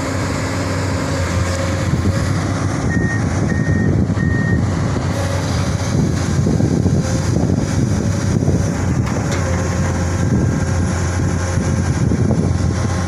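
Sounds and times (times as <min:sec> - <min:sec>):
excavator diesel engine droning: 0:00.0 - 0:13.0.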